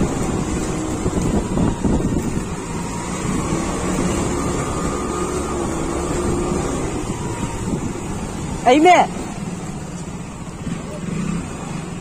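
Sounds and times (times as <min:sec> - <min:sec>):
wind noise on microphone: 0:00.0 - 0:08.5
motorcycle engine running: 0:00.0 - 0:12.0
tyres hissing on wet road: 0:00.0 - 0:12.0.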